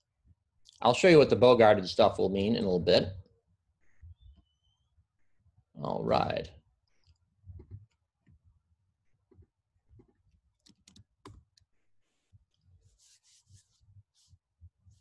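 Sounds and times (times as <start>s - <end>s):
keyboard and mouse clicks: 10.0s - 11.7s.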